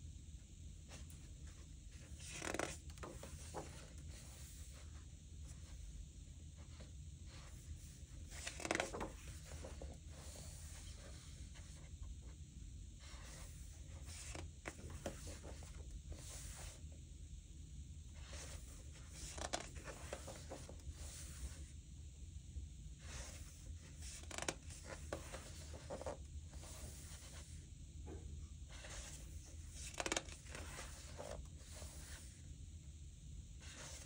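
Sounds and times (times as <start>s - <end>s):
paper rustling under hand: 1.5s - 5.0s, 6.6s - 12.0s
paper pages turning: 1.9s - 4.8s, 7.4s - 11.8s, 28.8s - 32.3s.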